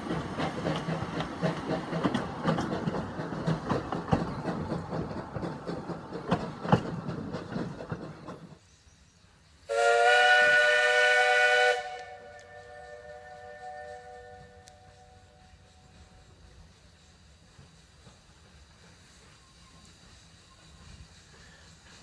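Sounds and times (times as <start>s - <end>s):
train wheels clicking over rail joints: 0.0s - 22.0s
steam locomotive whistle: 9.7s - 16.1s.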